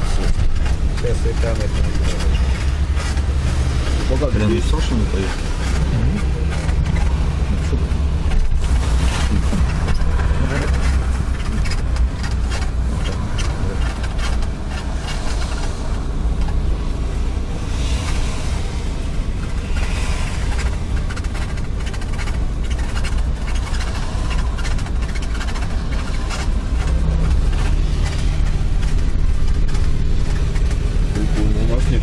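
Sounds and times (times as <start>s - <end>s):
car driving rumble: 0.0s - 32.0s
passing traffic: 0.0s - 32.0s
tyre and wind hiss: 14.6s - 21.8s.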